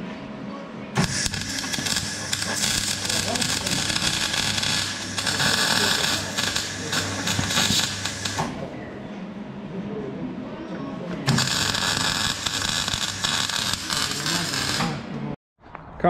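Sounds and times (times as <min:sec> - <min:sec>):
low electrical hum: 0:00.0 - 0:16.0
arc welder crackling: 0:01.0 - 0:08.6, 0:11.2 - 0:15.1.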